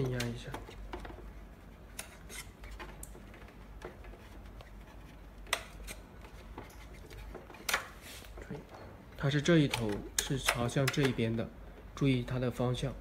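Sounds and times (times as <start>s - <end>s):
screwdriver rubbing and scraping plastic: 0.0s - 7.8s
sharp plastic clicks: 9.6s - 11.3s.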